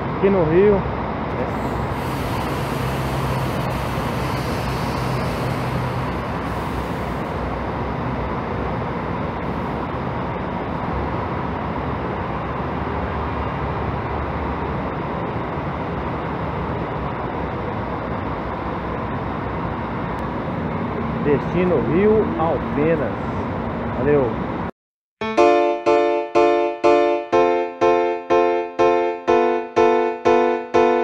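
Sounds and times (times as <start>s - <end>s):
diesel bus engines idling: 0.0s - 24.7s
low hum: 1.3s - 10.4s.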